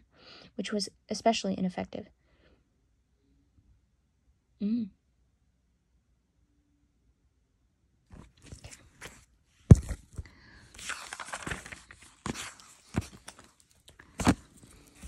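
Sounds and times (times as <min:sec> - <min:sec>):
book clicks and knocks: 0:08.1 - 0:15.0
paper rustling: 0:08.1 - 0:15.0.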